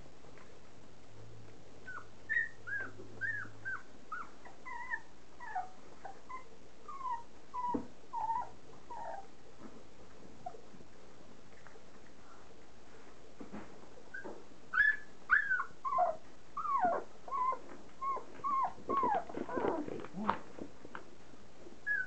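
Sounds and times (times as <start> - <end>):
puppies whimpering and squealing: 1.9 - 9.3, 14.2 - 20.3.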